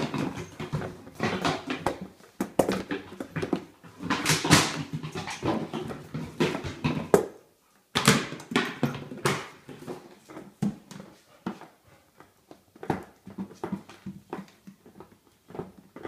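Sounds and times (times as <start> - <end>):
plastic bottle knocking on tiles: 0.0 - 3.6.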